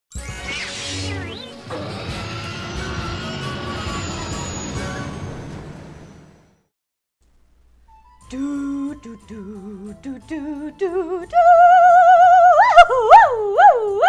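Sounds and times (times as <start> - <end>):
woman singing with vibrato: 8.3 - 14.0.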